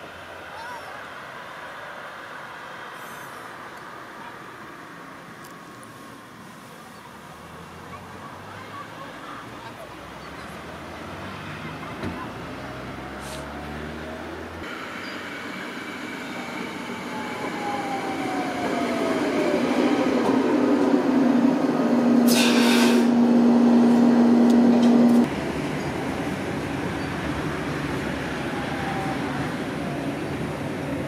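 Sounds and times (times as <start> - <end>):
short hiss: 13.2 - 13.5, 22.3 - 23.1
rumble inside moving tram: 14.0 - 31.0
tram motor whine: 14.6 - 31.0.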